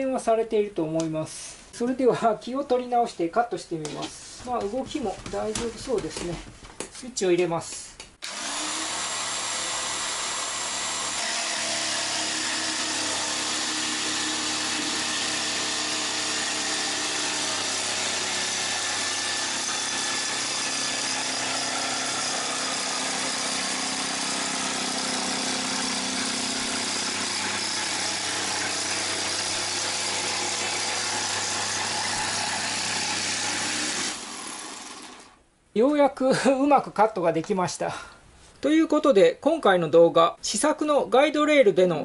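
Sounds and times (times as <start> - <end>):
jigsaw cutting plywood: 8.2 - 35.4.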